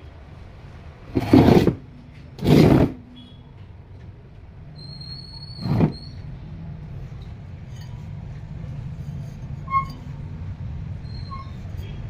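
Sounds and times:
high squeal: 4.8 - 6.3, 9.6 - 10.1, 11.0 - 12.0.

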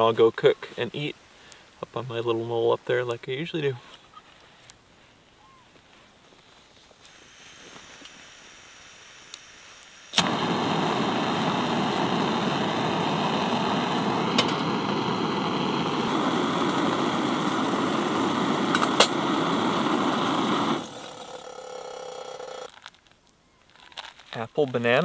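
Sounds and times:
gas burner hissing: 7.0 - 22.7
stove igniter click: 10.1 - 20.9.

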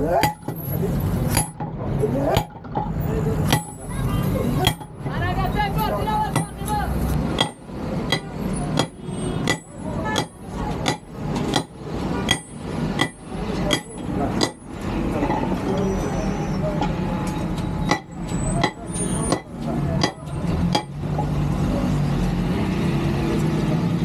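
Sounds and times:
hammer striking metal on anvil: 0.2 - 0.6, 1.3 - 1.7, 2.3 - 3.8, 4.6 - 5.0, 7.4 - 14.7, 17.9 - 21.0.

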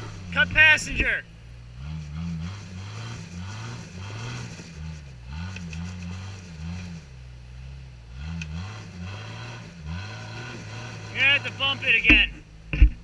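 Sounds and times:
engine revving: 0.0 - 12.5.

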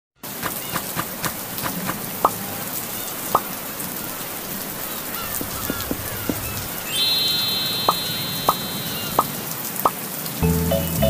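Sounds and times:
steady rain hissing: 0.2 - 11.0
drops plinking: 5.6 - 9.4.

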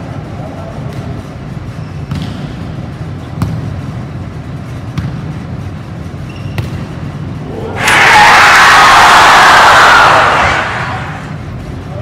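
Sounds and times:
low hum of hall: 0.0 - 12.0.

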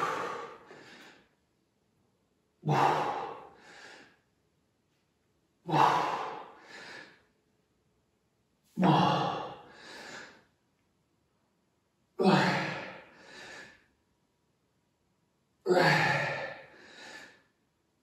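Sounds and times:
person breathing heavily: 0.0 - 1.4, 2.6 - 4.2, 5.6 - 7.4, 8.8 - 10.5, 12.2 - 13.9, 15.7 - 17.6.

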